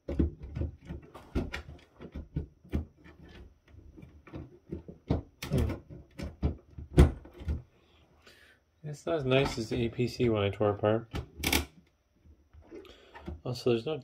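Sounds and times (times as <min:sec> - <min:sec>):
plastic clicks and knocks: 0:00.0 - 0:07.6, 0:11.1 - 0:12.0.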